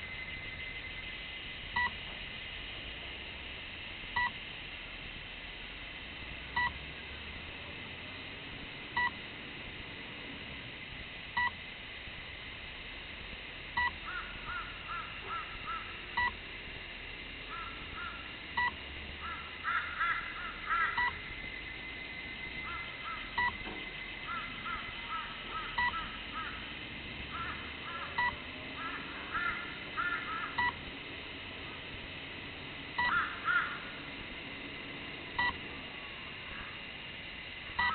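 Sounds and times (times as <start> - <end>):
birds calling: 14.0 - 16.3, 17.5 - 21.4, 22.3 - 26.6, 27.3 - 30.7, 33.0 - 33.9.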